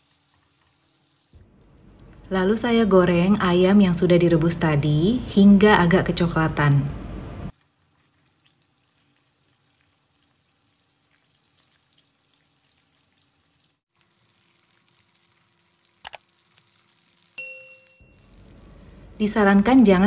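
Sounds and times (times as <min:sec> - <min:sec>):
chicken frying with crackles: 0:00.0 - 0:01.4, 0:07.5 - 0:20.0.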